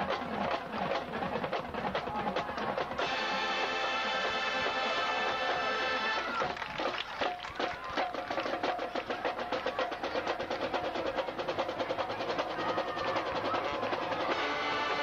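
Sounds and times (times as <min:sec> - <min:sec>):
drumline beating: 0:00.0 - 0:15.0
marching band playing: 0:00.0 - 0:15.0
horns playing sustained chords: 0:03.0 - 0:06.3.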